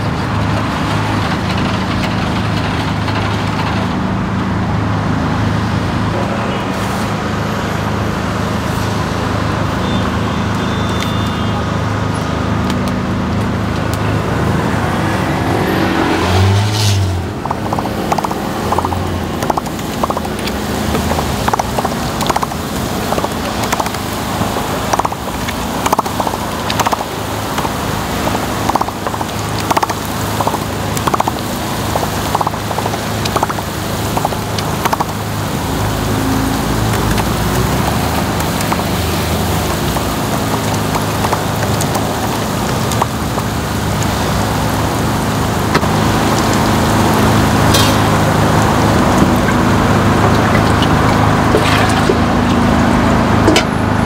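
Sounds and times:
batter sizzling on griddle: 17.5 - 52.5.

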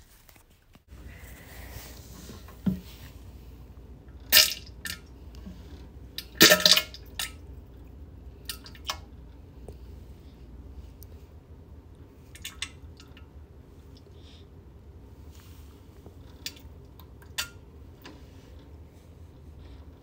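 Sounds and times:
steady low hum: 0.9 - 20.0
splashes into toilet water: 6.2 - 7.4.

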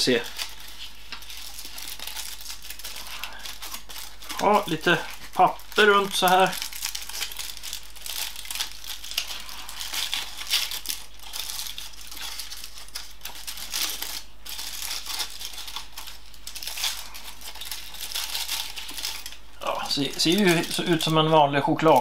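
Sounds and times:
paper wrapper crinkling: 0.0 - 22.0.

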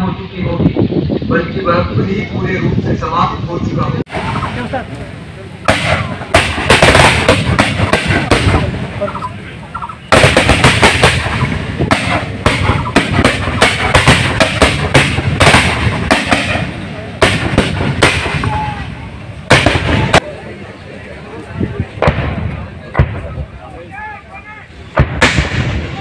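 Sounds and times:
rapid gunfire: 5.7 - 8.8, 10.1 - 18.5, 19.5 - 20.2.

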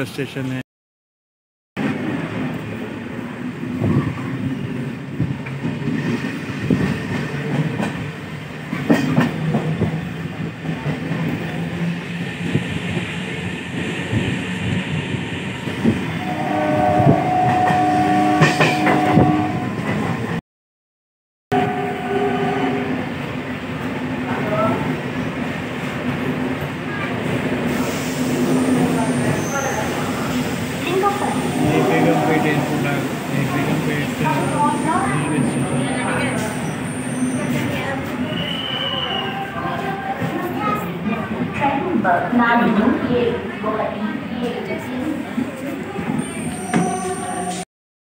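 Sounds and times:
train rumble with rail clicks: 1.8 - 20.4, 23.0 - 47.6
train horn: 16.2 - 19.9, 21.5 - 23.0, 31.4 - 33.0.

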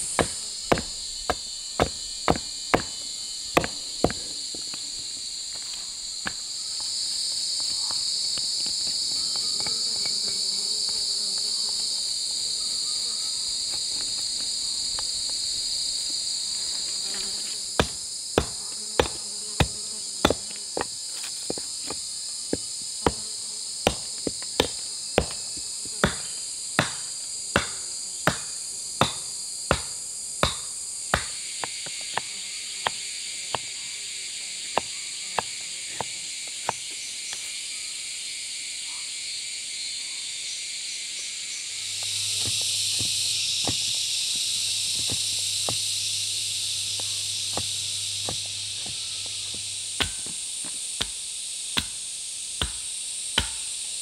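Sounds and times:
tool knocking on wood: 0.0 - 3.0, 3.6 - 4.6, 17.8 - 21.6, 23.8 - 25.4
high drone of insects: 0.0 - 54.0.

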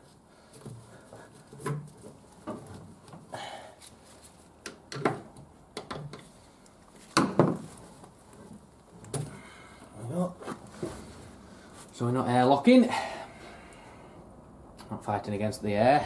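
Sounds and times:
gloved hands clicking and knocking: 4.6 - 6.3.

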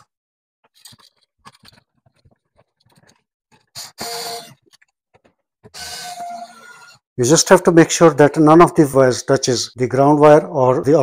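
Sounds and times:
clicks and scrapes of wires: 0.6 - 7.0
cordless drill whirring: 3.8 - 4.6.

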